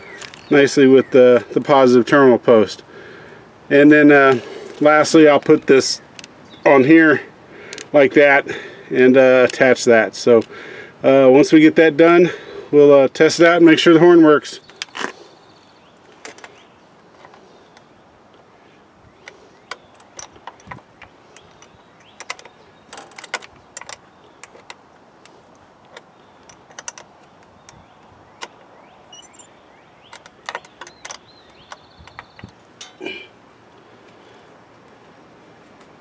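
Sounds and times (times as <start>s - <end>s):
metallic clicks and clinks: 29.1s - 29.5s.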